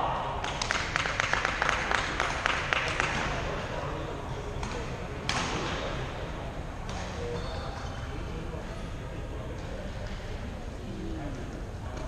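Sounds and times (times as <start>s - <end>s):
spectators clapping: 0.4s - 3.4s.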